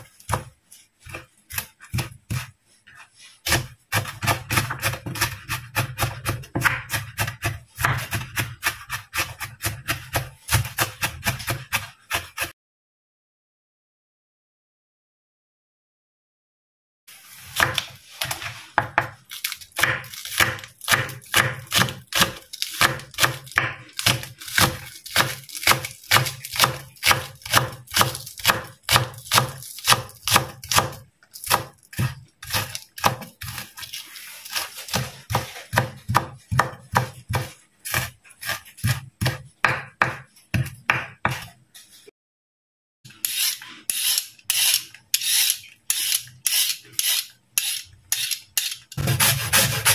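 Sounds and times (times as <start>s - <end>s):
knife chopping on wooden board: 0.0s - 2.6s, 3.4s - 12.5s, 19.8s - 33.9s, 34.5s - 41.5s, 49.0s - 49.9s
peeler scraping carrot: 0.0s - 12.5s, 19.3s - 39.5s, 43.1s - 49.9s.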